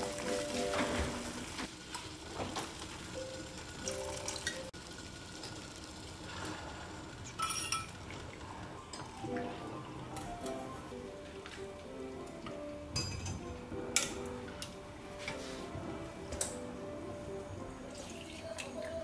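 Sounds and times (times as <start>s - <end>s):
water boiling in a pot: 0.0s - 10.2s.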